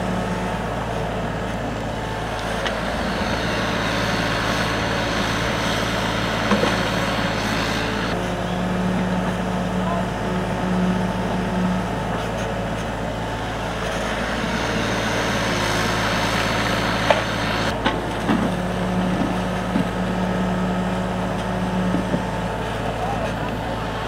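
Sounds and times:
excavator diesel engine running: 0.0s - 24.0s.

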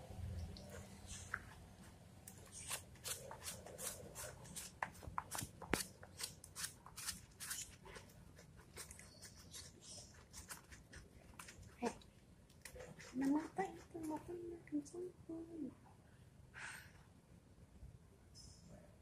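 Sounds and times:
brush scrubbing wet dog coat: 2.6s - 5.6s.

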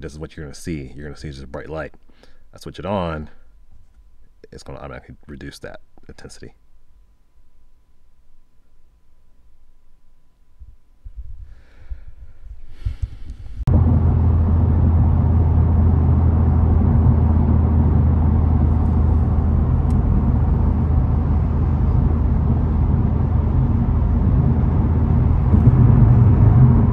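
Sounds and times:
low engine drone: 13.6s - 26.9s
tyre and road rush: 13.7s - 26.9s.

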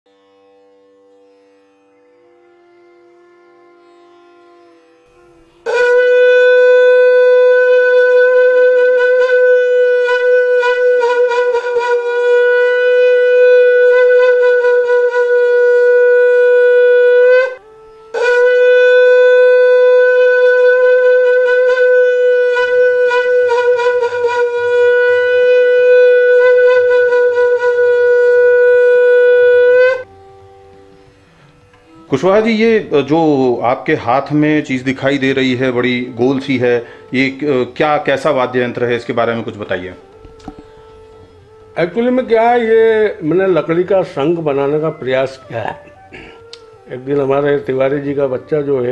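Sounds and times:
conch blasts: 5.1s - 33.7s, 34.7s - 47.1s
breath: 31.0s - 31.6s, 36.8s - 37.1s, 40.5s - 41.2s, 46.1s - 46.5s.

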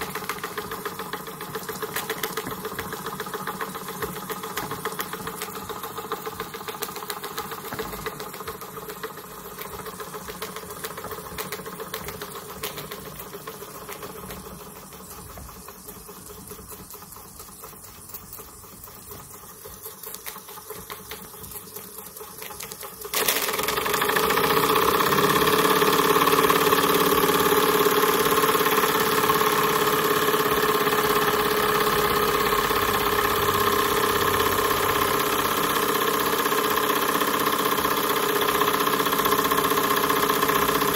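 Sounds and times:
steam engine mechanical clatter: 22.4s - 40.9s.

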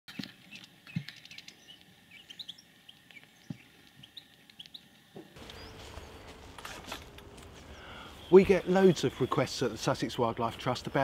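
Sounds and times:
finches chirping and twittering: 0.4s - 6.4s
outdoor hiss: 1.6s - 11.0s.

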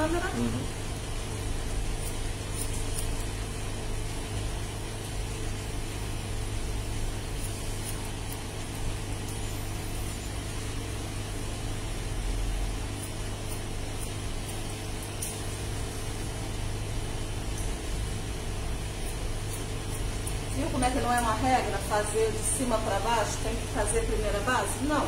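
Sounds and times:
low machine hum: 0.0s - 25.0s
scissors snipping hair: 2.0s - 3.3s, 7.4s - 9.4s, 13.0s - 15.5s, 19.0s - 21.4s.

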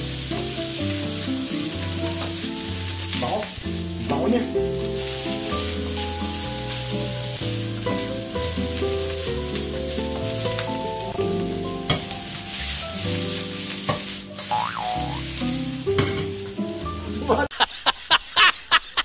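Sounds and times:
background music: 0.0s - 17.5s
food sizzling in a wok: 0.0s - 17.5s
spatula clanking against wok: 11.9s - 12.3s, 15.9s - 16.5s.

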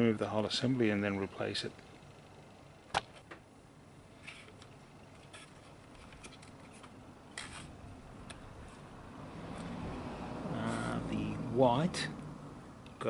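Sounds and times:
wires and plastic rustling: 4.2s - 8.9s.

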